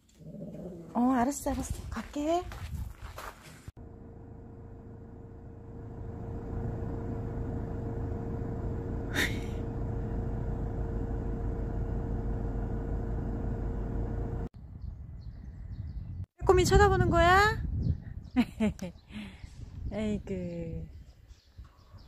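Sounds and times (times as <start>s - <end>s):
low rumble with hum: 3.8s - 18.2s.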